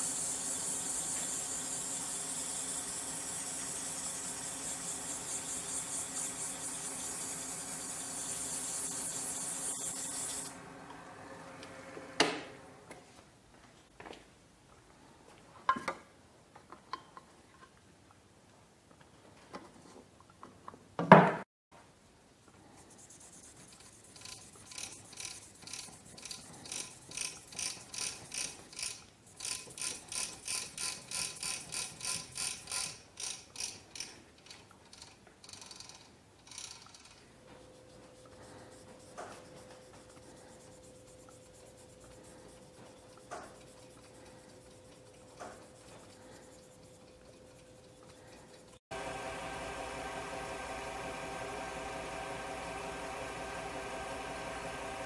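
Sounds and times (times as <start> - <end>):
pad rubbing on wood lathe: 0.0 - 10.5, 22.8 - 32.9, 37.5 - 48.8
steady hum: 37.4 - 55.0.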